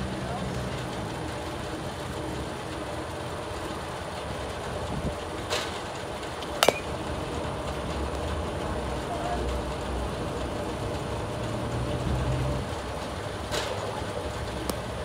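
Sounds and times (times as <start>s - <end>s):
outdoor background noise: 0.0s - 15.0s
bat striking softball: 6.5s - 7.1s.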